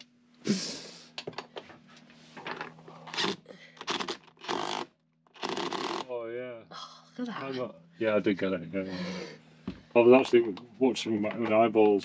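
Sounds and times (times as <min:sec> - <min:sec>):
low steady hum: 0:05.4 - 0:12.0.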